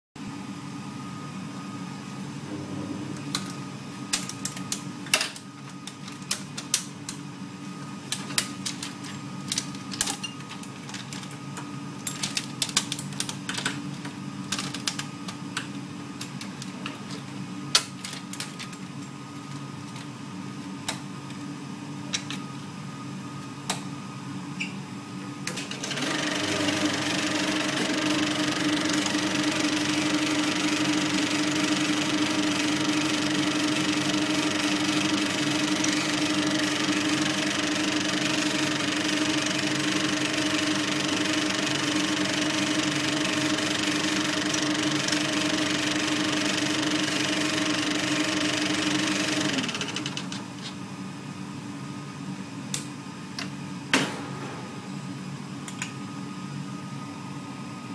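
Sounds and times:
steady low hum: 0.2s - 9.8s.

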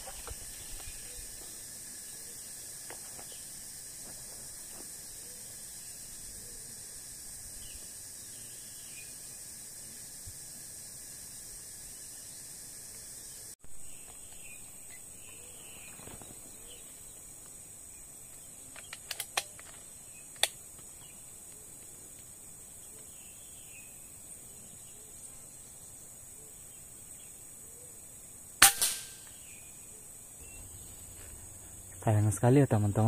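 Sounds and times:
air rifle shot: 28.6s - 29.2s.

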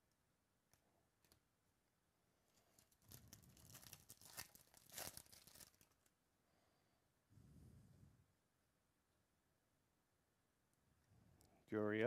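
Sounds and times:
foil wrapper tearing and crinkling: 2.7s - 6.1s.

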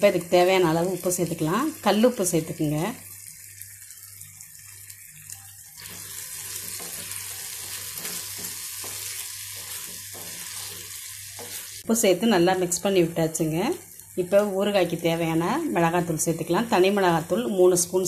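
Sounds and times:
food sizzling in oil: 0.0s - 18.0s
spoon stirring in pan: 4.0s - 11.9s.

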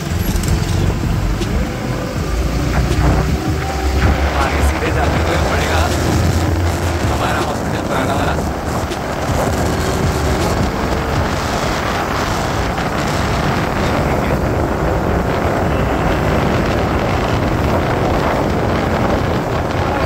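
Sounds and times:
vehicle engine and road noise: 0.0s - 20.0s
wind on microphone: 0.0s - 20.0s.

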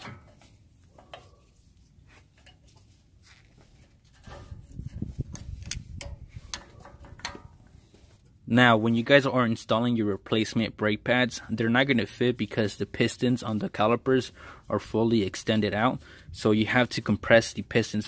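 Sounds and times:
metal clicking and scraping: 3.8s - 8.4s.

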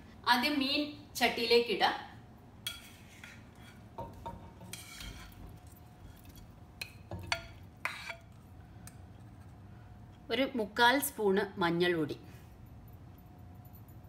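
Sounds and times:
ladle scraping ceramic bowl: 4.6s - 6.4s, 7.2s - 8.3s.

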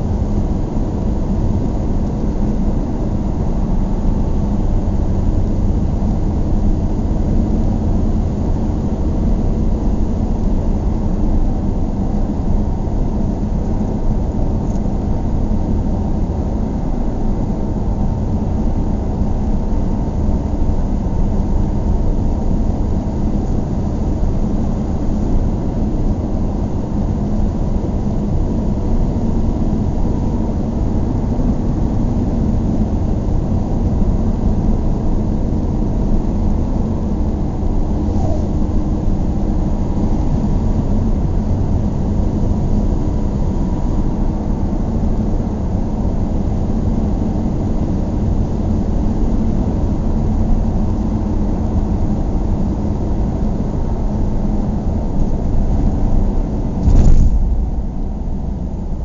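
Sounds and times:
car driving on highway rumble: 55.6s - 59.0s.

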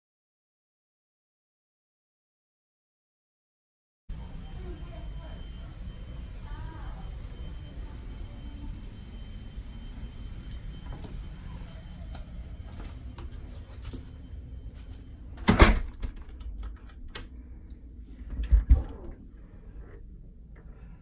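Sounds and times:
low rumble: 14.3s - 21.0s
heavy door thumps: 15.4s - 16.5s
wooden door clattering: 15.4s - 17.2s.

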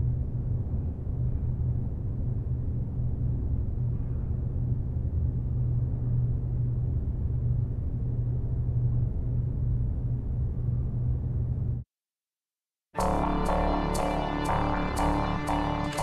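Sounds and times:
low rumble: 13.0s - 16.0s.

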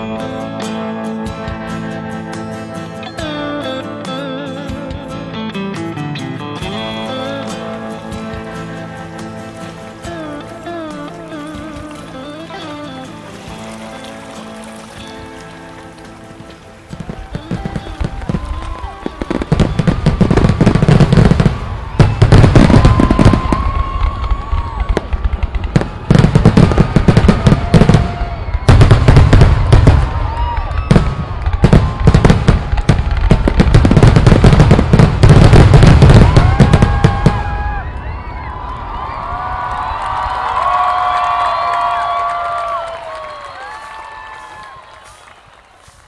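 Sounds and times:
fireworks crackling: 6.6s - 46.0s
fireworks deep booms: 16.9s - 39.1s.

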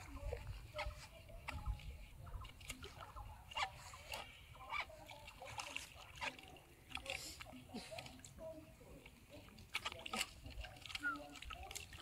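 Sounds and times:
fish splashing at water surface: 9.0s - 12.0s.

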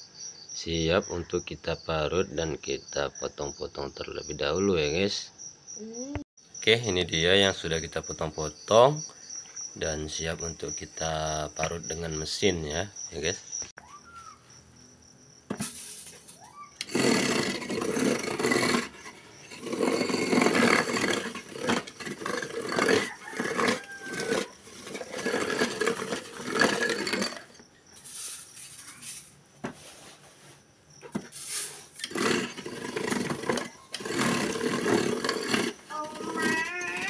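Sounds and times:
electric ice shaver grinding: 16.8s - 27.6s, 32.0s - 37.0s.

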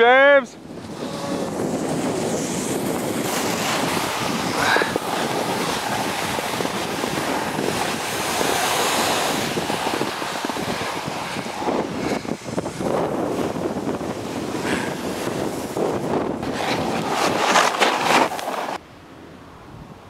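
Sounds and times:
wind on microphone: 0.0s - 18.8s
skis sliding on snow: 0.8s - 18.8s.

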